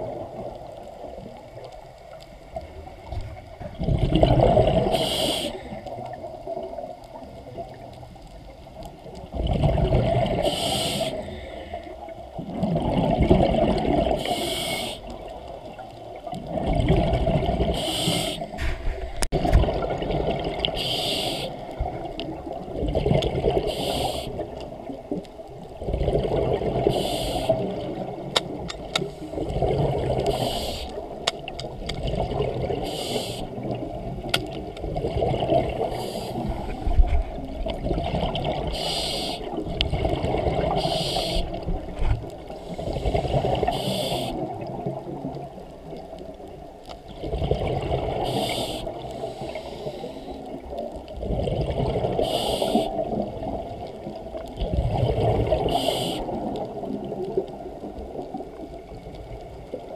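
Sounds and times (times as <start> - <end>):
muffled underwater noise: 0.0 - 8.9, 13.5 - 25.5, 26.2 - 31.3, 35.3 - 46.8, 47.5 - 59.9
rushing hiss: 4.9 - 5.7, 10.4 - 11.3, 14.2 - 15.1, 17.8 - 19.2, 20.8 - 21.6, 23.7 - 24.4, 27.0 - 27.6, 30.3 - 31.0, 32.8 - 33.5, 38.7 - 39.6, 40.8 - 41.6, 42.6 - 44.4, 48.3 - 50.4, 52.2 - 53.0.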